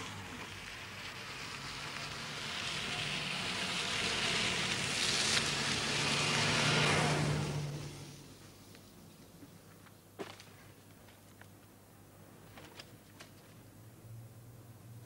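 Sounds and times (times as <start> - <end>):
vehicle engine and tyre noise: 0.0 - 10.4.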